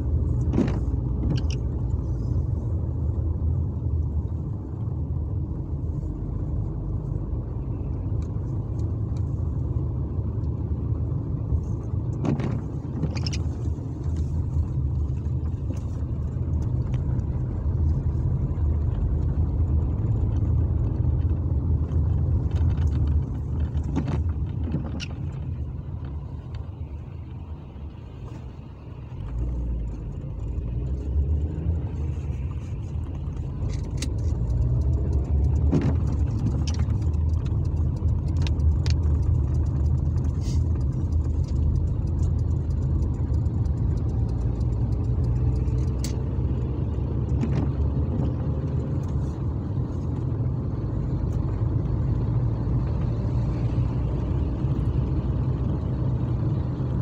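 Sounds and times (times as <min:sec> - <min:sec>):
engine and road rumble: 0:00.0 - 0:57.0.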